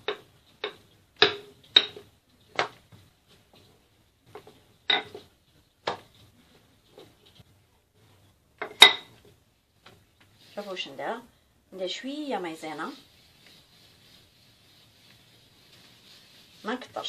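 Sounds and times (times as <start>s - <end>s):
rolling pin knocking on stone: 0.0s - 3.0s, 4.3s - 6.1s.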